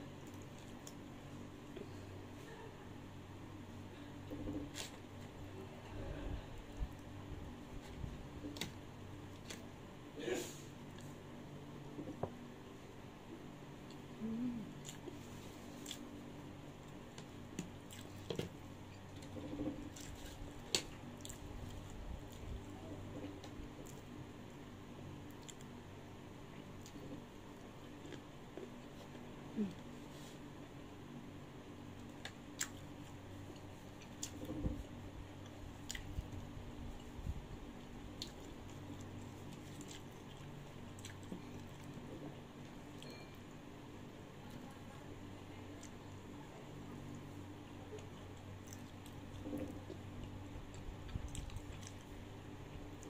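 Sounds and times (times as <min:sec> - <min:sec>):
faint room hum: 0:00.0 - 0:53.0
soft chewing: 0:00.0 - 0:53.0
chewing and wet bites: 0:35.4 - 0:43.1, 0:47.9 - 0:53.0.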